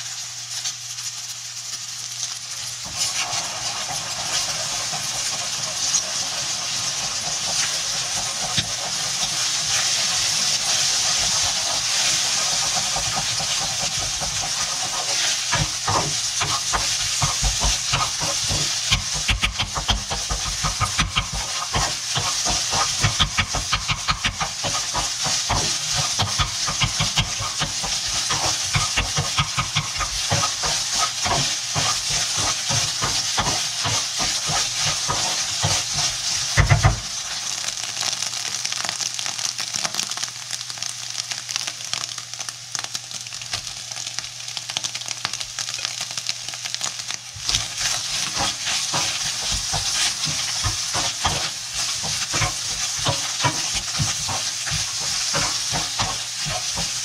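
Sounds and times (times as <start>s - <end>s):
fried rice sizzling in wok: 0.0s - 57.0s
spatula knocking and scraping wok: 2.8s - 37.4s, 47.4s - 57.0s.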